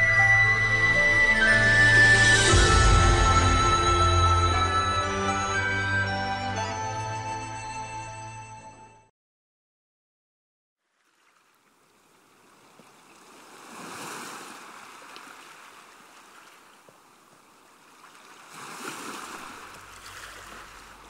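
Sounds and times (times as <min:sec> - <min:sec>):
small waves washing onto shore: 0:10.9 - 0:21.0.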